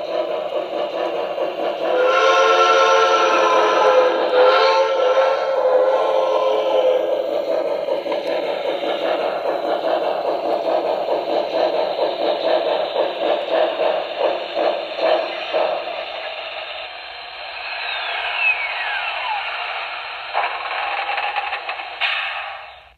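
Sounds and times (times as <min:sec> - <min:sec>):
model steam locomotive chuffs: 0:00.0 - 0:22.9
steady steam hiss: 0:00.0 - 0:22.9
click: 0:08.0 - 0:08.5.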